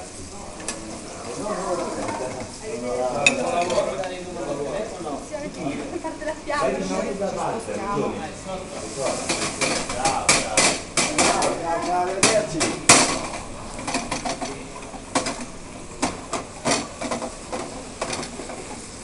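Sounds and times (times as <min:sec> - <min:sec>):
frying pan knocking on grate: 0:09.3 - 0:14.5, 0:15.1 - 0:18.7.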